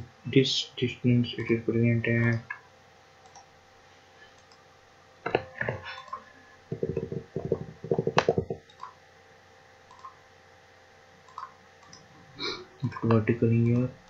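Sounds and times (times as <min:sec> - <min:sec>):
computer mouse clicks: 0:03.2 - 0:03.5, 0:04.4 - 0:04.6, 0:05.9 - 0:09.0, 0:09.9 - 0:10.2, 0:11.3 - 0:12.1.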